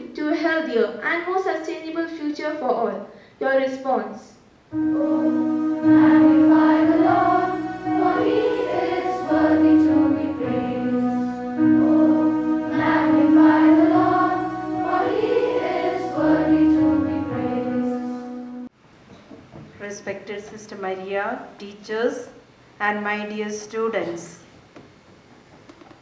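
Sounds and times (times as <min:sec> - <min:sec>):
sustained keyboard chords: 0:04.7 - 0:18.7
young voices singing slow song: 0:04.7 - 0:18.7.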